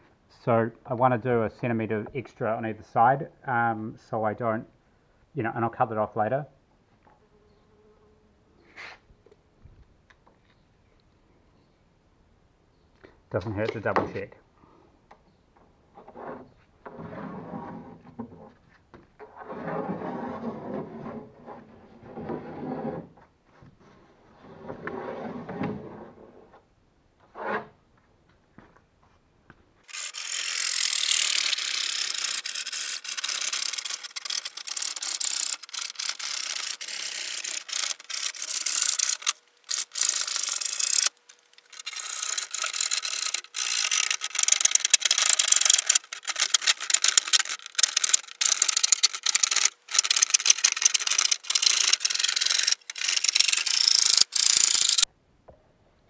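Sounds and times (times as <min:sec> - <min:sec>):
rasping scrape on wood: 0:19.3 - 0:23.1.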